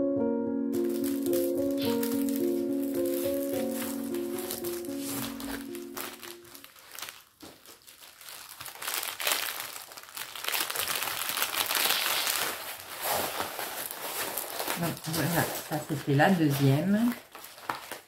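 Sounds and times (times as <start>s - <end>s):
music notes: 0.0s - 6.7s
plastic packaging crinkling: 0.8s - 18.0s.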